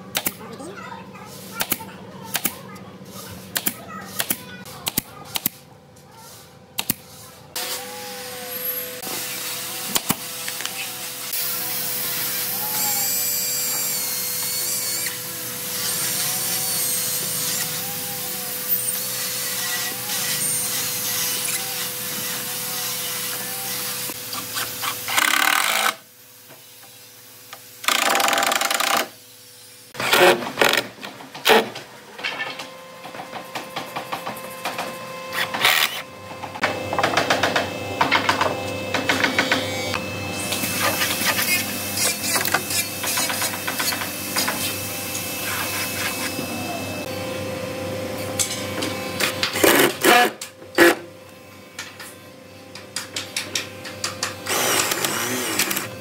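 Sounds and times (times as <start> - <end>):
power tool working wood: 7.6 - 29.2, 35.3 - 47.2, 54.4 - 56.0.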